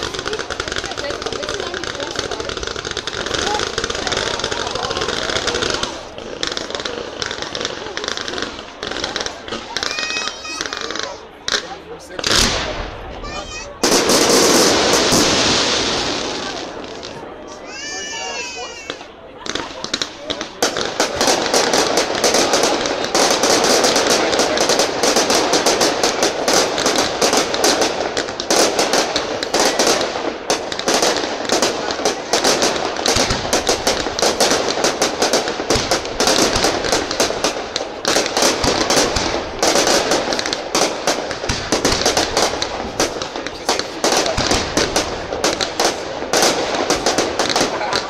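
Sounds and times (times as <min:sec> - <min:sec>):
fireworks crackling and popping: 0:00.0 - 0:48.0
fireworks low booms: 0:00.0 - 0:48.0.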